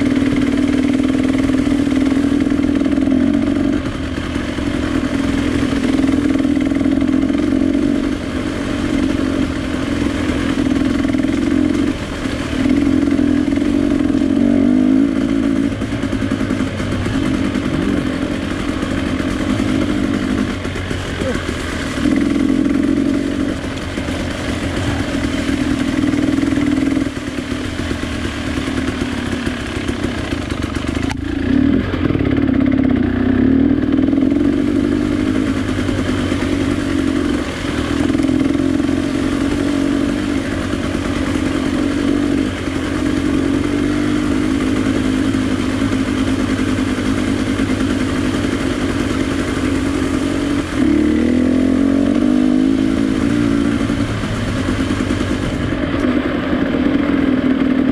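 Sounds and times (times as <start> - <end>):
vehicle engine running: 0.0 - 57.9.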